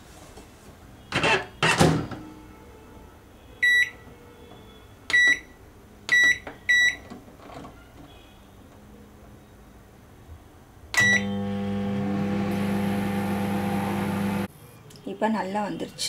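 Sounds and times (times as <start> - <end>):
microwave electronic beeps: 11.0 - 11.8.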